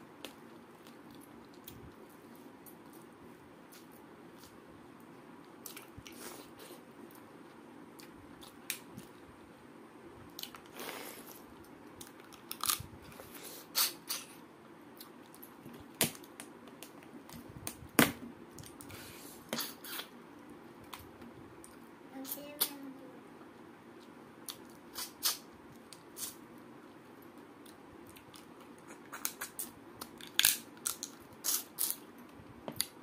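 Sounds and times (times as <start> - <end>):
person chewing food: 27.4 - 32.0.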